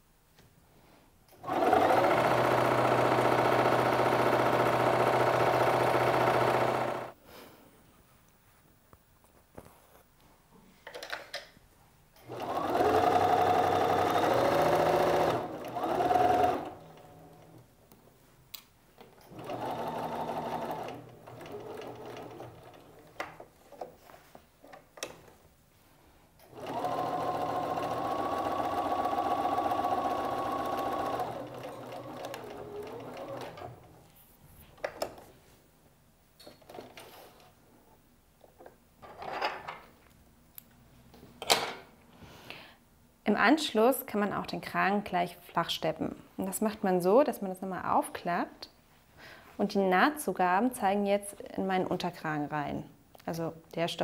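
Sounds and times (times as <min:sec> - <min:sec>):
sewing machine stitching: 0:01.4 - 0:07.1, 0:12.2 - 0:17.6, 0:19.2 - 0:23.0, 0:26.4 - 0:33.9.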